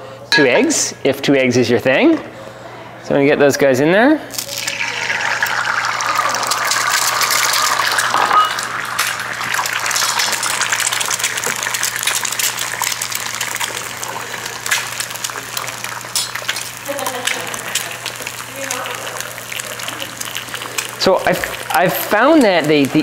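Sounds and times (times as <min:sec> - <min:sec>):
eggs sizzling in oil: 0:04.3 - 0:23.0
small crackling pops: 0:09.0 - 0:23.0.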